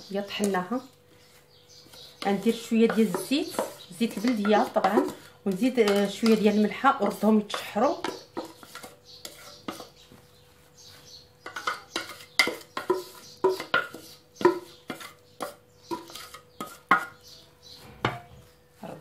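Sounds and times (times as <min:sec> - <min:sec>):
metal bowl tapped and scraped: 0:01.8 - 0:10.2, 0:11.4 - 0:17.4, 0:18.0 - 0:18.5.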